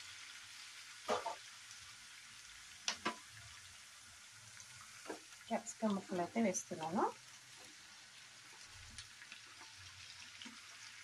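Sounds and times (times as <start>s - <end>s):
onions sizzling in a pan: 0.0s - 11.0s
spatula stirring in a pan: 2.8s - 11.0s.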